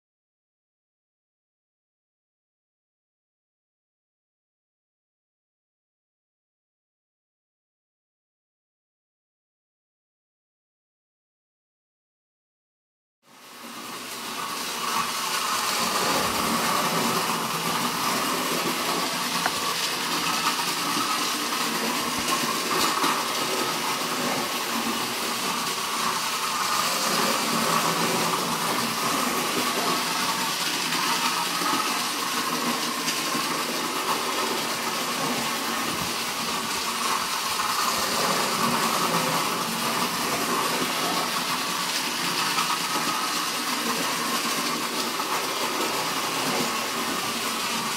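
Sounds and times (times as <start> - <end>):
toy train motor whirring: 14.7 - 47.9.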